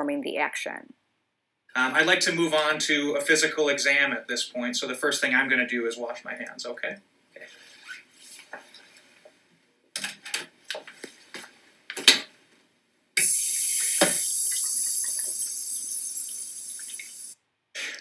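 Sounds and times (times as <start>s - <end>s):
faucet water running into sink: 13.2s - 17.4s.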